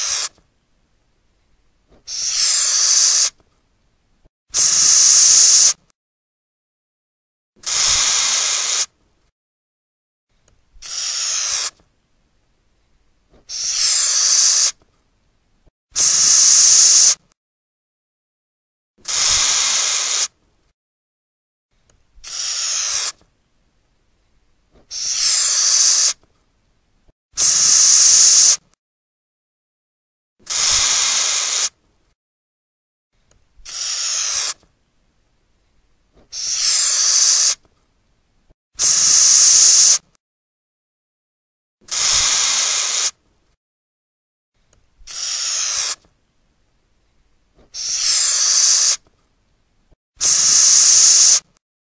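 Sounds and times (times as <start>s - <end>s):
cockroach hissing: 0.0s - 0.3s, 2.1s - 3.3s, 4.6s - 5.8s, 7.6s - 8.9s, 10.8s - 11.7s, 13.5s - 14.8s, 16.0s - 17.2s, 19.1s - 20.3s, 22.2s - 23.1s, 24.9s - 26.2s, 27.4s - 28.6s, 30.5s - 31.7s, 33.7s - 34.6s, 36.3s - 37.6s, 38.8s - 40.0s, 41.9s - 43.1s, 45.1s - 46.0s, 47.7s - 49.0s, 50.2s - 51.4s.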